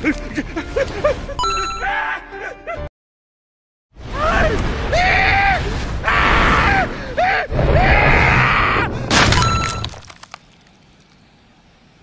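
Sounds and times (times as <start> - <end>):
crunching crash: 7.5 - 11.2.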